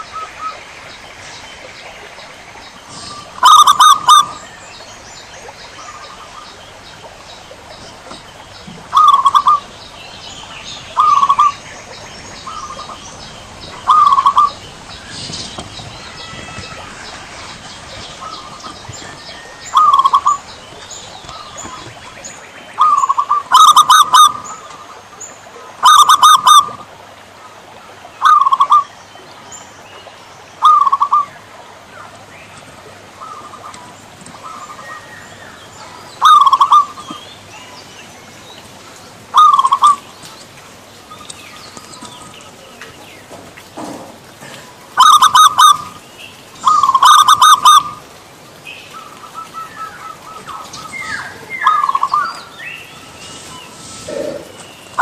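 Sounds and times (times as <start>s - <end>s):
small birds chirping: 0.0s - 26.7s, 28.1s - 55.0s
dove cooing: 2.9s - 4.4s, 8.0s - 9.9s, 10.7s - 22.1s, 22.8s - 24.4s, 25.8s - 26.8s, 36.2s - 37.2s, 39.3s - 40.0s, 44.4s - 46.0s, 46.6s - 48.1s, 53.0s - 55.0s.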